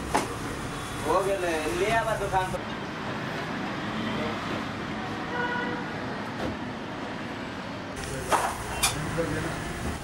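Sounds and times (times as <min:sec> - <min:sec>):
traffic hum: 0:00.0 - 0:10.0
vehicle horn toot: 0:05.3 - 0:05.8.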